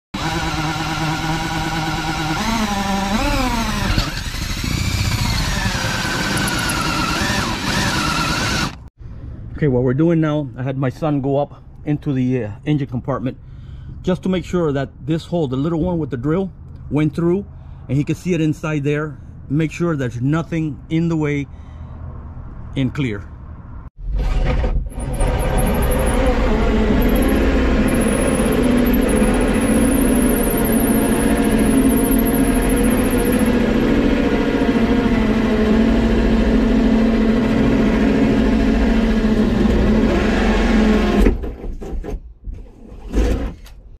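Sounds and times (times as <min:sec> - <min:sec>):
cordless drill whining: 0:00.2 - 0:08.9, 0:24.9 - 0:41.2
machine droning: 0:00.2 - 0:08.9, 0:24.9 - 0:41.2.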